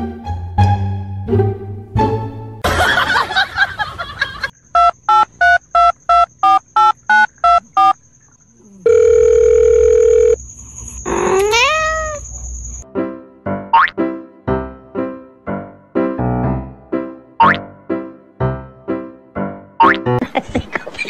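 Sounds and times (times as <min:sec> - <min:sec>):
telephone beeps: 0:04.8 - 0:08.0, 0:08.8 - 0:10.4
dial tone: 0:08.7 - 0:10.4.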